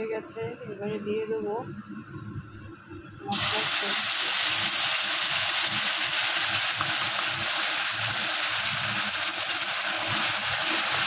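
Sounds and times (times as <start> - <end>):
paste sizzling in hot oil: 3.3 - 11.0.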